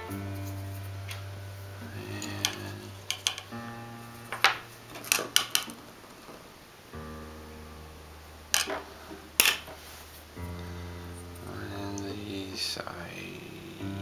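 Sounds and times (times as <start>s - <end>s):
keyboard music with sustained chords: 0.0s - 6.2s, 6.8s - 14.0s
wooden pieces tapping on tabletop: 2.3s - 3.5s, 4.3s - 5.8s, 8.6s - 8.8s, 9.4s - 9.8s.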